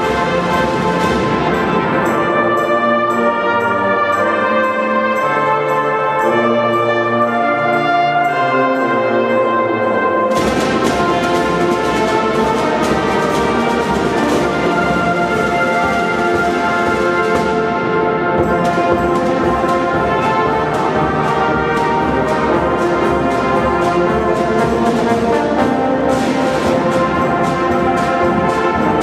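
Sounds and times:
marching drums: 0.0 - 2.8, 10.3 - 29.0
brass instruments playing: 0.0 - 29.0.

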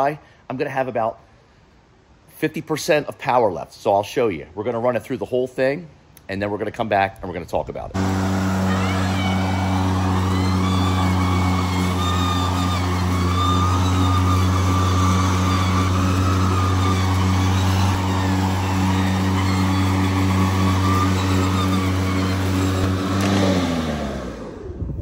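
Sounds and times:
electric lawnmower humming: 8.0 - 25.0.

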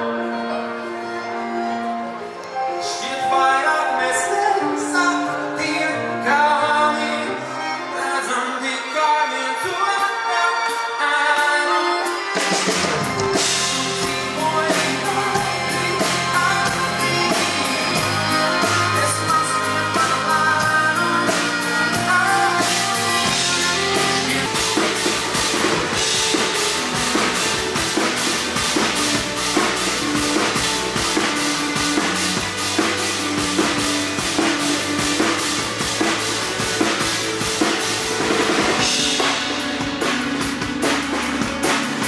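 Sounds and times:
live band playing: 0.0 - 42.0
drum kit beat: 12.0 - 42.0
bass guitar: 12.4 - 42.0.

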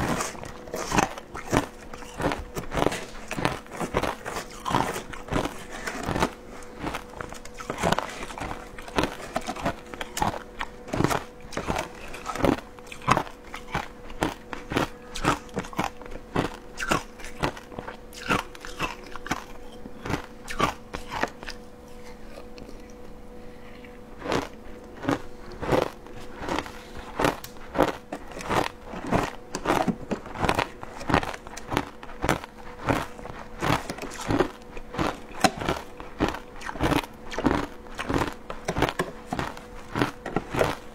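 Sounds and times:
crunching and chewing shaved ice: 0.0 - 40.9
faint steady hum: 0.0 - 40.9.

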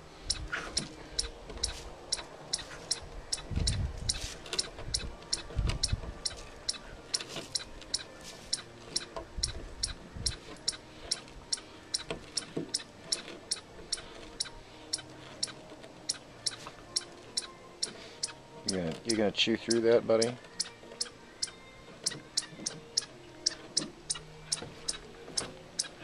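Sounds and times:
chipmunk chip calls: 0.2 - 26.0
dog chewing and scratching wood: 12.1 - 14.4.

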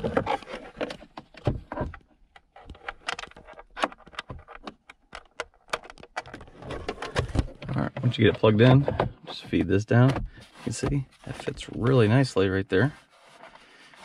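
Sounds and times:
plastic parts clicking and rattling: 0.0 - 9.3.

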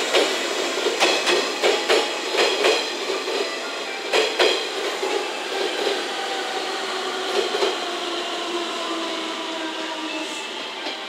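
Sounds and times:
train wheels clacking over rail joints: 0.0 - 6.0
train running noise: 0.0 - 11.0.

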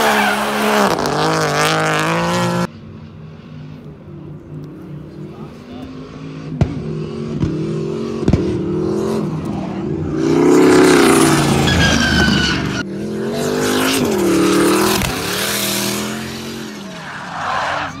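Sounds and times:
car engine revving: 0.0 - 18.0
tyres squealing: 11.2 - 12.9.

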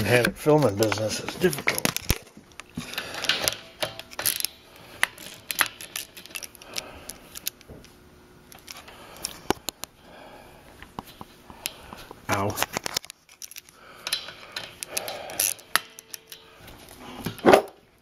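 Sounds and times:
wrench clicking on hose fitting: 13.4 - 16.5.

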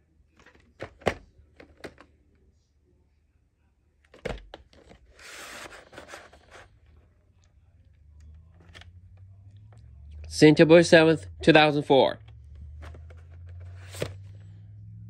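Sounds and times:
cassette scraping rustle: 4.2 - 6.8, 12.3 - 14.4.

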